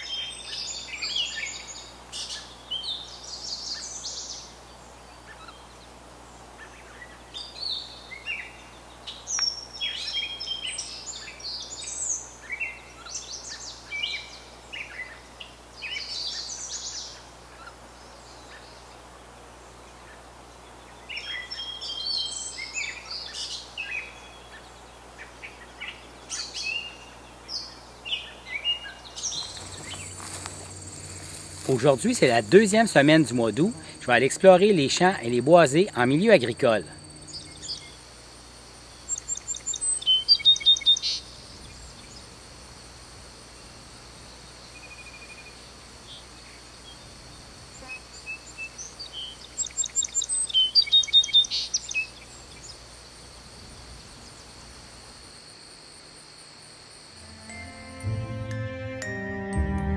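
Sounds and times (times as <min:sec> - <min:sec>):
small birds chirping and trilling: 0:19.6 - 0:42.5, 0:44.4 - 0:53.1.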